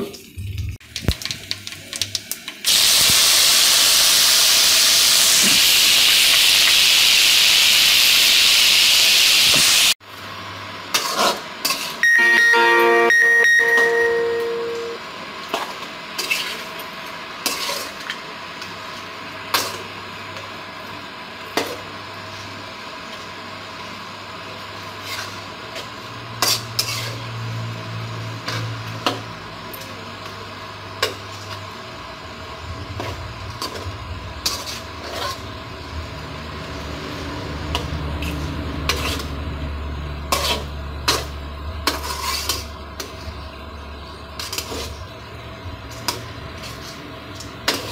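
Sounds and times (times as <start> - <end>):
frying sizzle: 0.0 - 47.9
metal spatula scraping a pan: 26.4 - 27.4, 33.0 - 35.6, 37.7 - 39.4, 40.3 - 43.2, 44.4 - 45.1.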